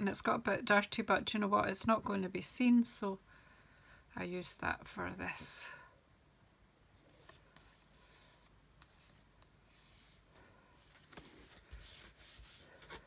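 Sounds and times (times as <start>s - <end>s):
cardstock rustling on a mat: 7.0s - 13.0s.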